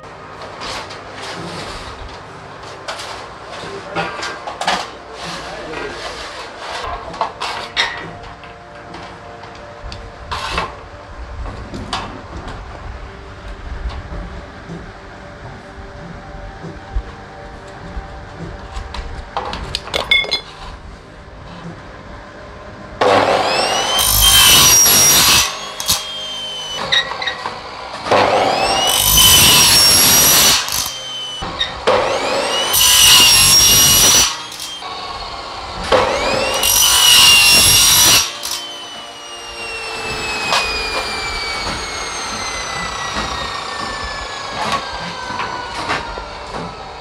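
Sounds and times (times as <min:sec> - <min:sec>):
saw motor whine: 0:00.0 - 0:47.0
chop saw cutting metal: 0:00.4 - 0:09.7, 0:10.3 - 0:10.8, 0:23.0 - 0:47.0.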